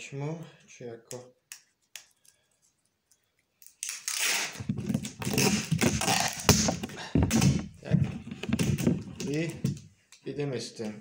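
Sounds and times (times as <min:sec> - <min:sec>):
tape pulled off roll: 0:03.9 - 0:07.7.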